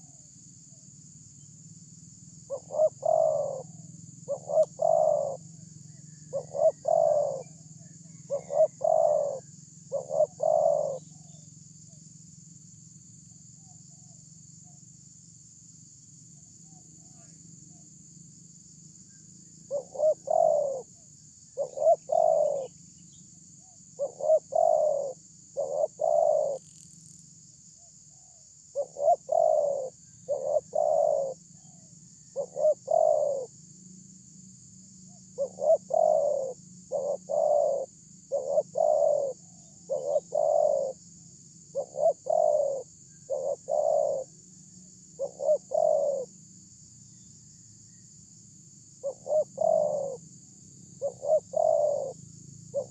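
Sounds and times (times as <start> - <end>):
dove cooing: 2.5 - 5.4, 6.3 - 11.4, 19.7 - 21.0, 21.6 - 22.8, 23.6 - 26.6, 28.2 - 33.5, 35.1 - 41.0, 41.7 - 44.4, 45.2 - 46.4, 49.0 - 50.2, 51.0 - 52.9.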